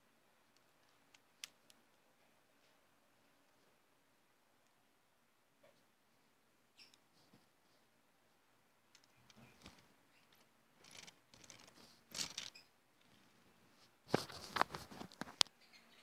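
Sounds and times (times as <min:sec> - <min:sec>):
plastic toy rustling and clicking: 0:08.9 - 0:13.3.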